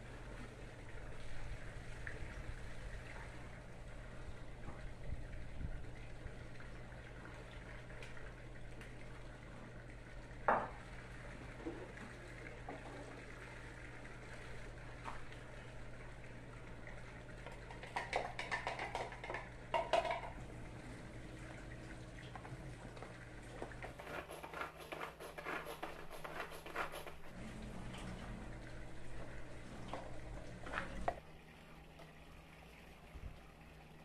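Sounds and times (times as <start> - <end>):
steady low hum: 0.0 - 18.4, 26.0 - 34.0
clinks and clatter of utensils: 17.8 - 20.4.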